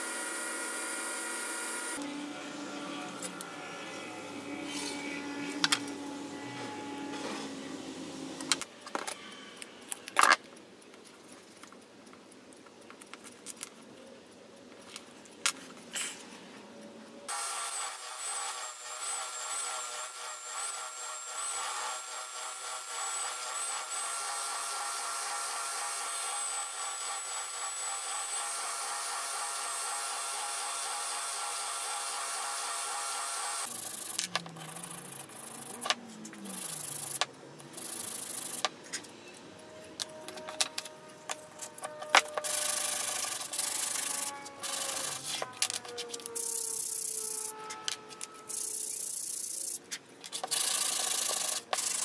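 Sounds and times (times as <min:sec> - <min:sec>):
machine hum: 0:00.0 - 0:08.6
wood being sanded: 0:42.4 - 0:45.5.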